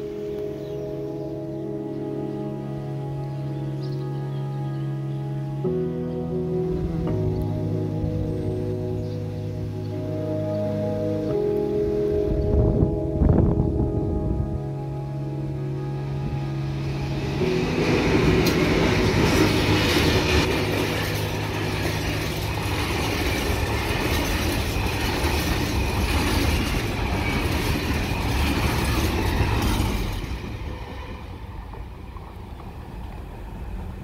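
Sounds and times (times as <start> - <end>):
train wheels rumbling on rails: 16.3 - 34.0.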